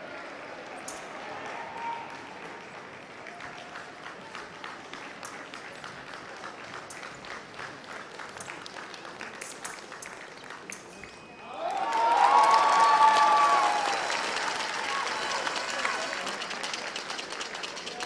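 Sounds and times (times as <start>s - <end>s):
people clapping: 0.0s - 18.0s
crowd outburst: 11.4s - 16.4s.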